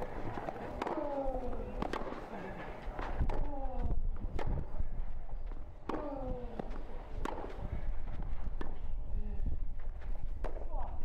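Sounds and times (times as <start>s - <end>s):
tennis ball struck by racquets: 0.0s - 3.5s, 4.3s - 4.7s, 5.8s - 7.9s.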